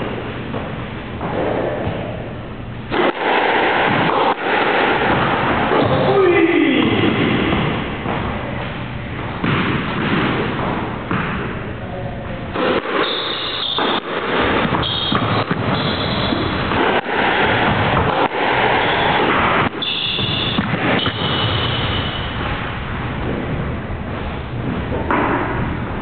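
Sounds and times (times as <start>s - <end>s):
squash ball hits: 0.0s - 11.8s, 12.5s - 26.0s
sneakers squeaking on wooden floor: 13.0s - 16.7s, 18.8s - 22.4s.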